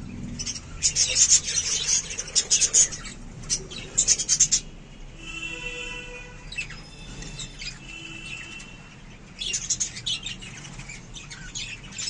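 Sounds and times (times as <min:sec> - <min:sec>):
budgerigars chattering: 0:00.3 - 0:04.7.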